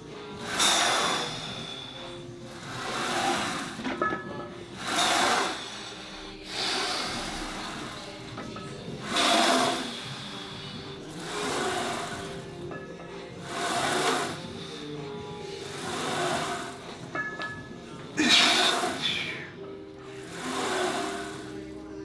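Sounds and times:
leg press sled moving on rails: 0.0 - 19.4, 20.1 - 21.9
effortful breathing: 0.2 - 3.8, 4.8 - 17.1.

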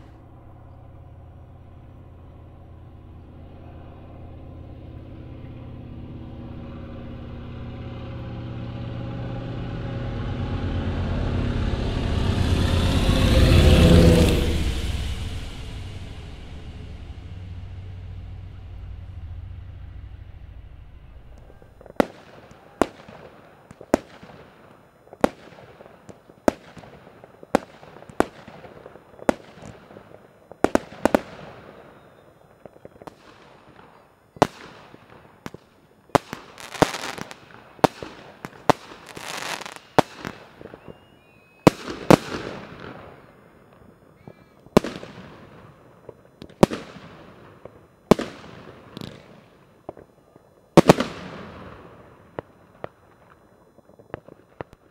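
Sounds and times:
firework crackle: 0.0 - 54.9
firework shells bursting: 13.5 - 54.9.

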